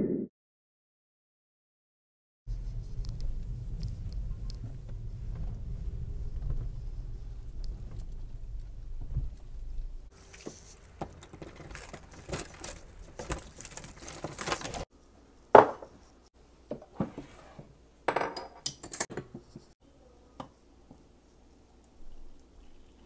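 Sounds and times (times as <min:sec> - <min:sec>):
loud knock on counter: 0:15.6 - 0:15.9.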